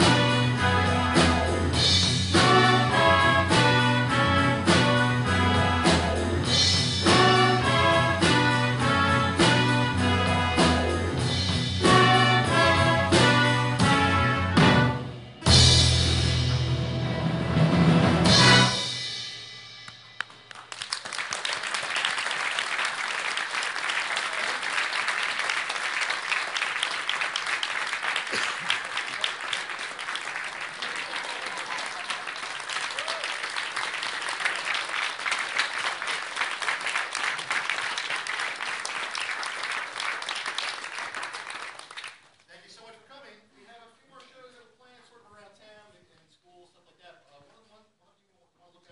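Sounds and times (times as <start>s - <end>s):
audience applauding: 20.2s - 42.3s.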